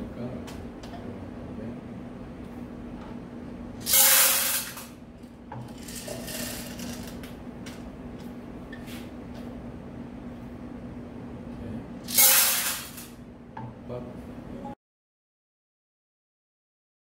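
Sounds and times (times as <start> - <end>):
tablets rattling on metal tray: 5.7 - 7.2.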